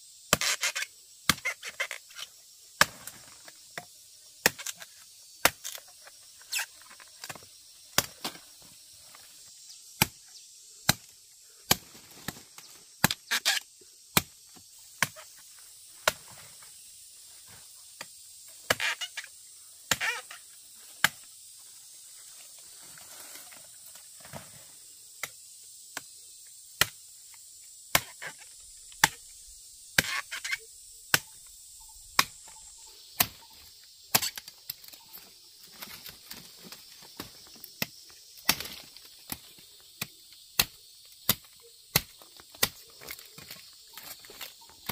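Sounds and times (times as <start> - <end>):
insects buzzing: 0.0 - 44.9
fruit stems snapping: 32.1 - 32.4, 34.1 - 35.0, 37.2 - 44.9.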